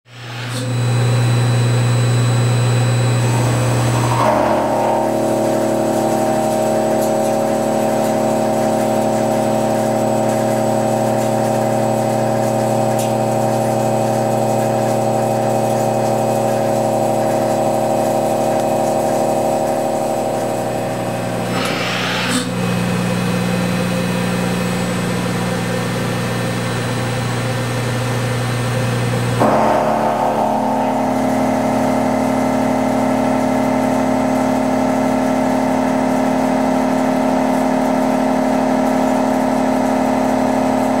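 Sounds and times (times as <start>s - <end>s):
milling cutter droning on steel: 20.9s - 22.8s
brief sharp scrape: 21.4s - 22.6s.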